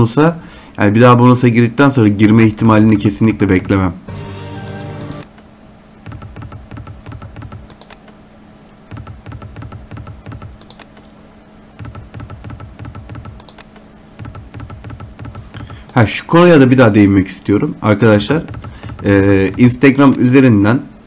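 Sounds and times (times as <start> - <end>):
slot reels ticking: 4.6 - 5.3, 18.2 - 20.0
sharp click: 6.1 - 8.2, 8.9 - 11.0, 11.8 - 16.0.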